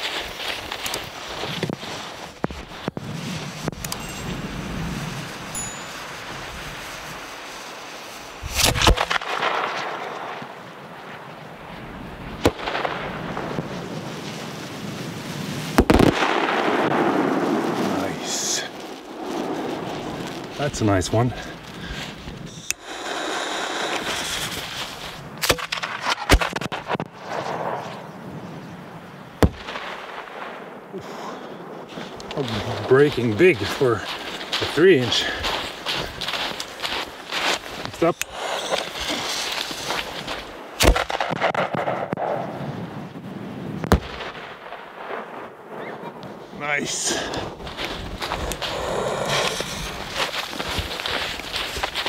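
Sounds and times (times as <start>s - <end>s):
firework hissing: 0.0s - 11.1s, 12.8s - 25.4s, 35.4s - 41.3s, 46.4s - 52.0s
firework shell bursting: 2.4s - 10.6s
sharp cracks of firework launch: 6.2s - 28.0s, 29.4s - 34.6s, 35.7s - 43.0s, 43.8s - 48.7s.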